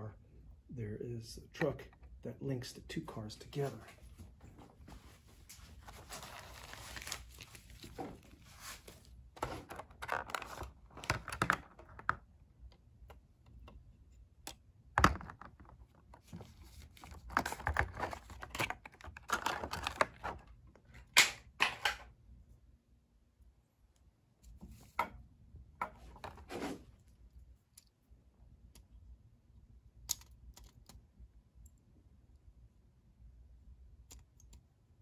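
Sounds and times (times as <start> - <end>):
plastic wrapping crinkling: 5.7 - 11.3.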